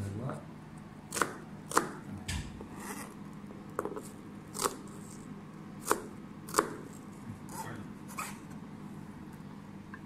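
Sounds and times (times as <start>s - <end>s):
faint steady hum: 0.0s - 10.0s
knife chopping on cutting board: 1.1s - 3.2s, 3.8s - 5.0s, 5.8s - 7.7s.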